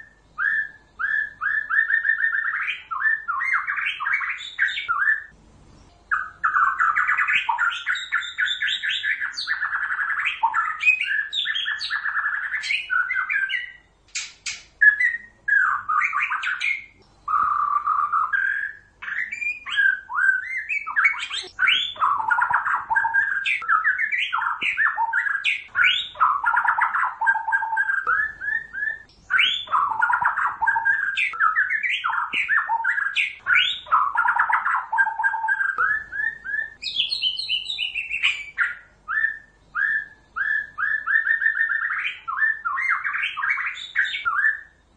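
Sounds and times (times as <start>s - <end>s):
bird singing whistles and trills: 0.0s - 44.9s
sharp clicking bird notes: 14.1s - 14.8s, 20.8s - 38.8s.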